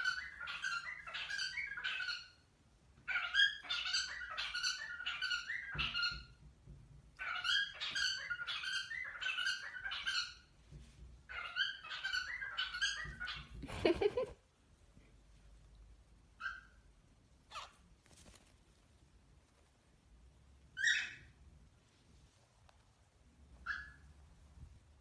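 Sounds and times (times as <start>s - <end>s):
cockatiels chirping: 0.0s - 2.4s, 3.0s - 6.4s, 7.2s - 10.5s, 11.3s - 13.6s, 16.4s - 16.9s, 17.5s - 17.9s, 20.7s - 21.4s, 23.6s - 24.1s.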